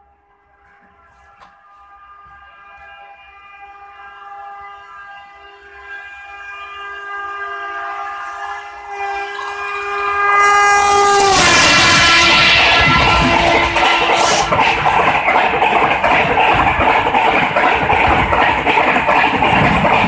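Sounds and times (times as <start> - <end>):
train horn: 0.0 - 14.8
train coaches rushing and rattling: 5.1 - 20.0.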